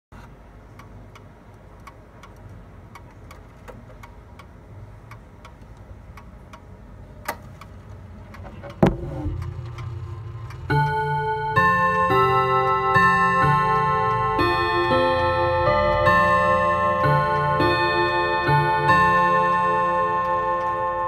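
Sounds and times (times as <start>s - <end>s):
clock ticking: 0.7s - 6.7s, 7.3s - 21.0s
heavy clock clunk: 8.4s - 20.3s
low chime ringing: 10.0s - 21.0s.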